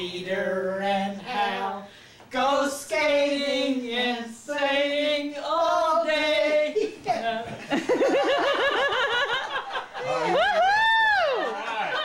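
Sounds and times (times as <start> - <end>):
women singing unaccompanied: 0.0 - 7.6.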